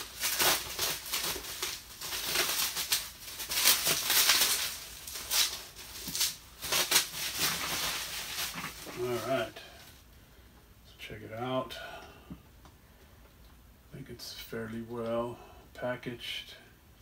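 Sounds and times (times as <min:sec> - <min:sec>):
bubble wrap crinkling: 0:00.0 - 0:10.1.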